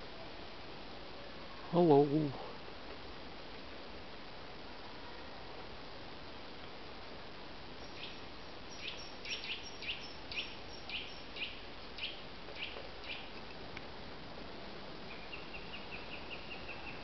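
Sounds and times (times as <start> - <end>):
steady background hiss: 0.0 - 17.0
small bird calling: 7.8 - 13.4, 15.1 - 17.0.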